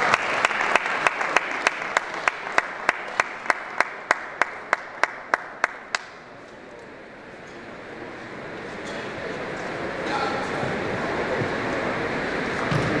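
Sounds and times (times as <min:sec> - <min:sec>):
crowd applause: 0:00.0 - 0:06.3.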